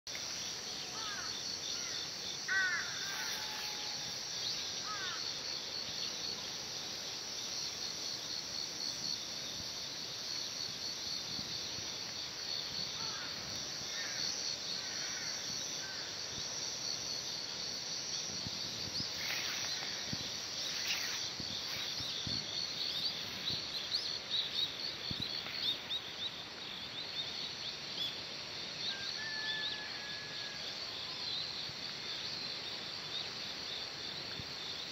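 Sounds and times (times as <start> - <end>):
crickets chirring: 0.1 - 34.9.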